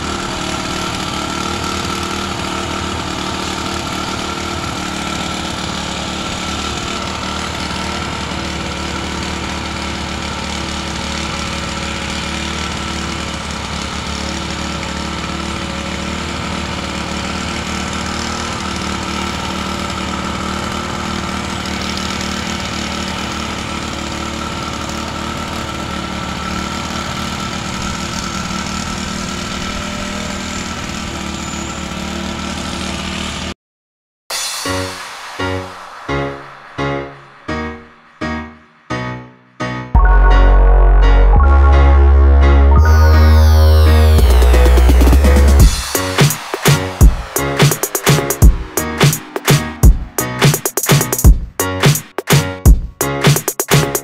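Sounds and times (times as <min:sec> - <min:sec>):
soil compactor pounding: 0:00.0 - 0:22.4.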